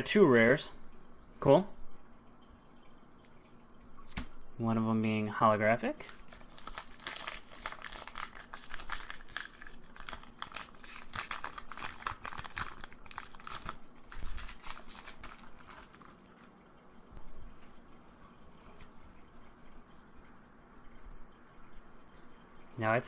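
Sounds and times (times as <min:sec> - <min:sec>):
foil wrapper crinkling: 0:06.0 - 0:16.2.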